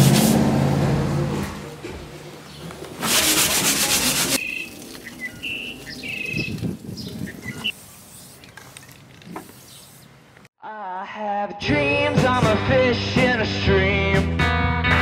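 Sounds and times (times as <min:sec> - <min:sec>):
sanding rasp: 0:03.0 - 0:04.4
birds chirping: 0:04.4 - 0:10.5.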